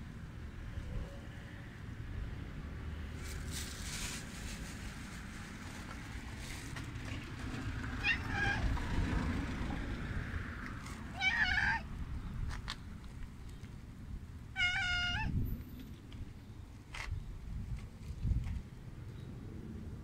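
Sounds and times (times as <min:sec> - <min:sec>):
cat meowing: 0:08.0 - 0:08.8, 0:11.1 - 0:11.9, 0:14.6 - 0:15.4.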